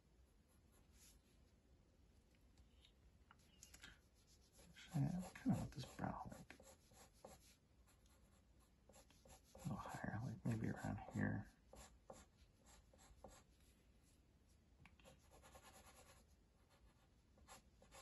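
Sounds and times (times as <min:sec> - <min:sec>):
pencil scratching on paper: 0:04.1 - 0:13.6, 0:15.0 - 0:18.0
low voice: 0:04.7 - 0:06.6, 0:09.6 - 0:11.5.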